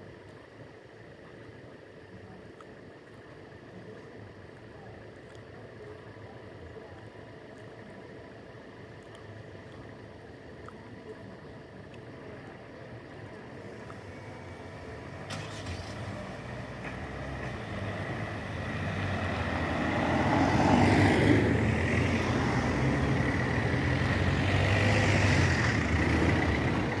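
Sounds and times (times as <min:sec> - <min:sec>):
car engines pulling away: 0:13.6 - 0:27.0.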